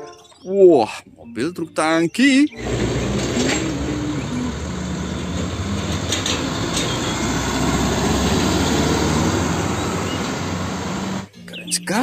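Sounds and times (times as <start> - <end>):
truck diesel engine passing: 2.5 - 11.3
tyre and road noise: 2.5 - 11.3.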